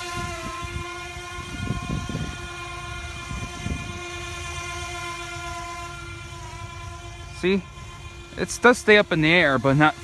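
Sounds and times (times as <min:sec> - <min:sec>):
wind buffeting microphone: 0:00.0 - 0:05.6
high-pitched toy propeller whine: 0:00.0 - 0:10.0.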